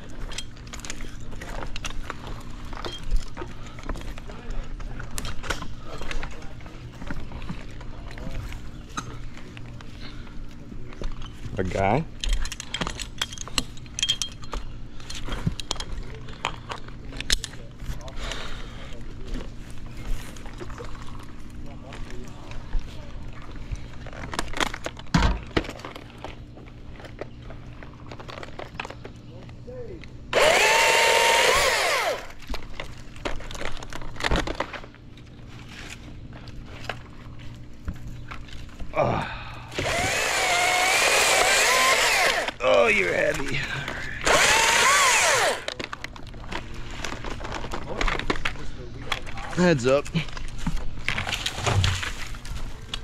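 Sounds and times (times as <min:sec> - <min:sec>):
steady low hum: 0:00.0 - 0:53.0
climbing hardware clinking: 0:12.2 - 0:16.0
chainsaw revving: 0:30.3 - 0:32.4, 0:39.8 - 0:42.6, 0:44.2 - 0:45.7.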